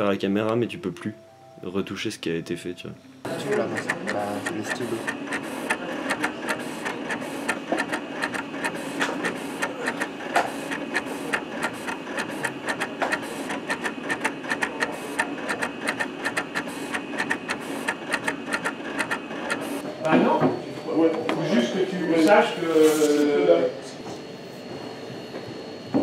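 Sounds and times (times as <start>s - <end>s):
carriage motors whirring: 3.2s - 23.2s
pen head ticking: 3.3s - 19.8s.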